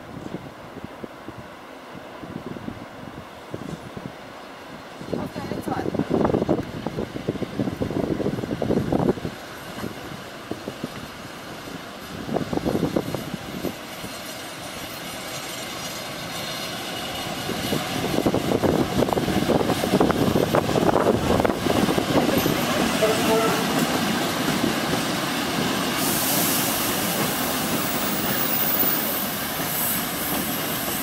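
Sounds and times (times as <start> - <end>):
train wheels clacking over rail joints: 12.3 - 31.0.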